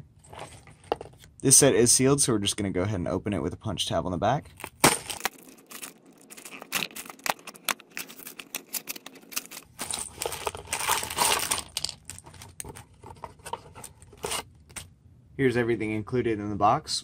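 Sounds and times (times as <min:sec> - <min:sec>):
cardboard and plastic rustling: 0:04.5 - 0:14.9.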